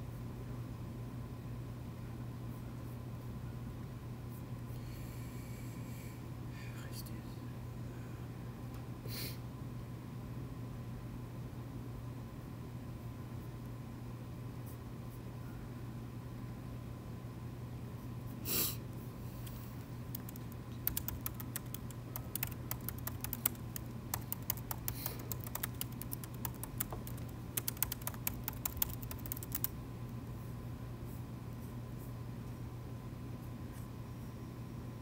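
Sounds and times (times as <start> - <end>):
low room hum: 0.0 - 35.0
typing on laptop keyboard: 20.1 - 29.8.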